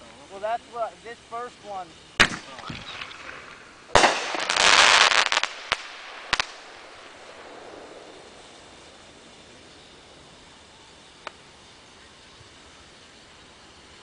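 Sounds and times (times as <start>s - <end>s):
firework crackling: 0.0s - 14.0s
firework pops: 2.2s - 6.7s, 11.2s - 11.4s
firework bang: 2.2s - 8.8s.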